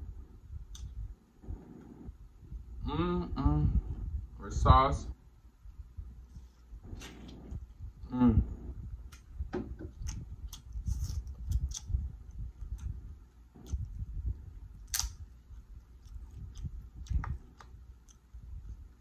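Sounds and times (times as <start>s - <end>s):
chewing: 14.8s - 18.3s
crab shell clicks: 14.9s - 15.2s.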